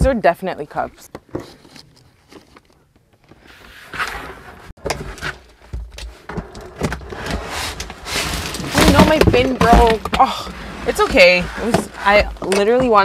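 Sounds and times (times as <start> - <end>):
rustling of packed items: 1.3 - 13.0
cardboard drum knocks and thuds: 8.6 - 10.4.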